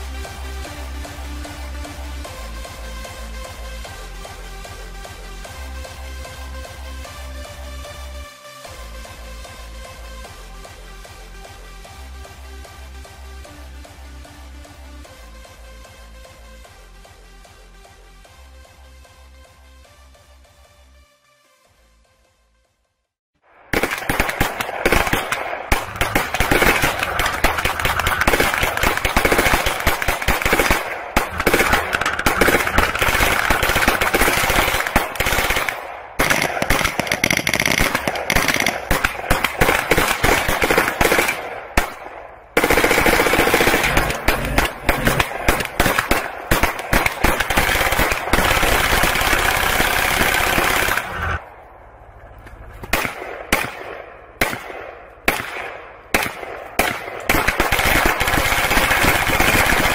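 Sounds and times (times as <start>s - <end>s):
automatic rifle fire: 23.7s - 51.4s, 52.9s - 59.9s.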